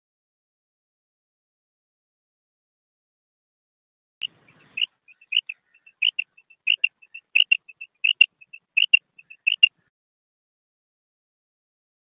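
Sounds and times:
quail calling: 4.2s - 9.9s.

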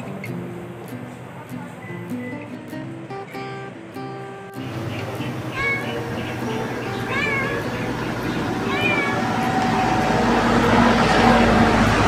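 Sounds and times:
steady background hum: 3.3s - 12.0s
cat meowing: 4.7s - 10.2s.

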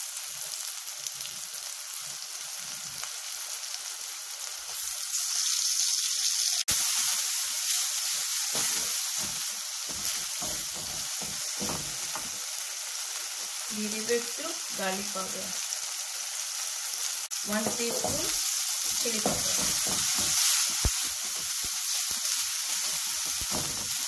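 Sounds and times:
vegetables sizzling in oil: 0.0s - 24.0s
wooden spatula knocking pan: 8.5s - 12.4s, 17.5s - 21.6s, 23.3s - 24.0s.

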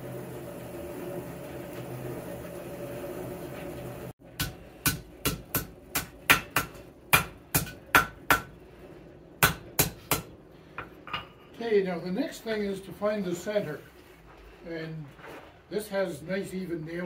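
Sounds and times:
hammer striking metal on an anvil: 4.4s - 8.5s, 9.4s - 11.4s.

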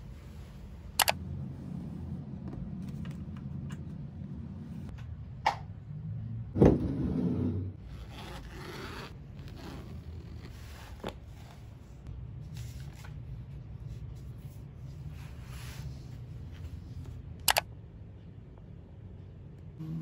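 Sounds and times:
low steady hum: 0.0s - 20.0s
zipper being drawn open: 7.8s - 11.2s.

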